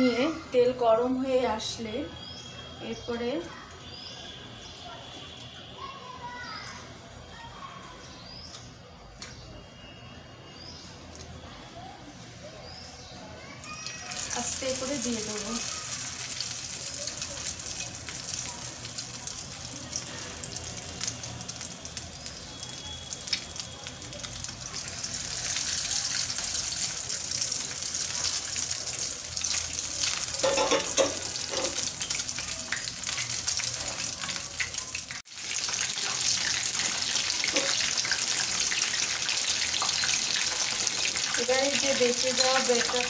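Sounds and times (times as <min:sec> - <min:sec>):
fish frying in hot oil: 0:13.6 - 0:43.0.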